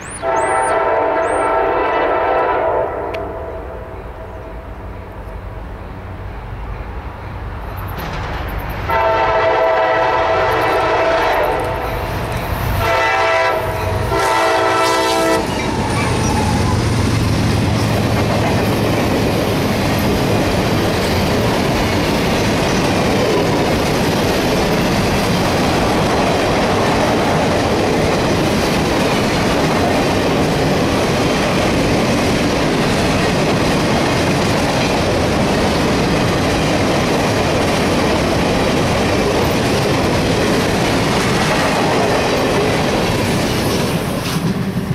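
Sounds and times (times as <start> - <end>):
train wheels on rails: 0.0 - 44.9
locomotive horn blasts: 0.2 - 4.4, 8.9 - 12.0, 12.8 - 15.8.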